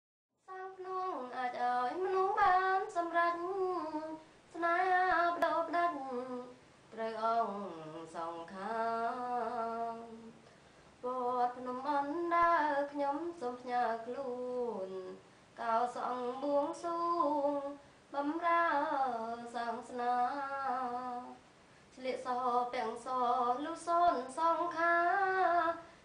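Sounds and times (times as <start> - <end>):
woman singing unaccompanied: 0.4 - 26.0.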